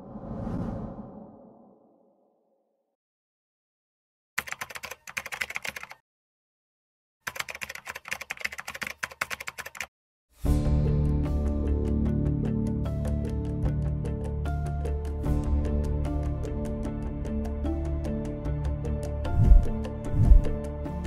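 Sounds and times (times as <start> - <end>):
keyboard typing clicks: 4.4 - 6.0, 7.3 - 9.9
background music: 10.4 - 21.0.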